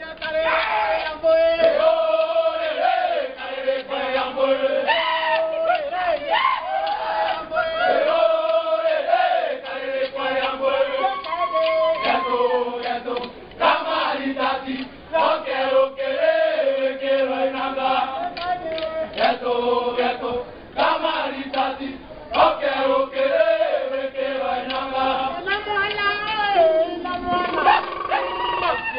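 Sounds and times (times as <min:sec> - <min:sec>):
group of voices chanting: 0:00.5 - 0:25.5.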